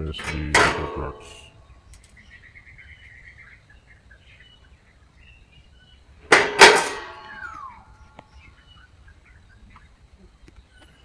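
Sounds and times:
faint bird chirping: 0.0s - 6.3s, 7.0s - 11.0s
metal studs clanking together: 6.3s - 7.4s.

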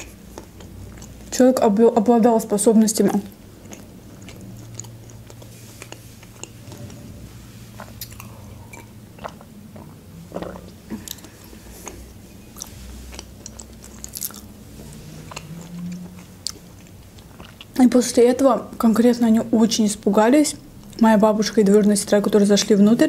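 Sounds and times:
chewing with wet clicks: 0.0s - 1.4s, 2.6s - 7.0s, 7.8s - 17.8s
low steady hum: 0.0s - 23.0s.

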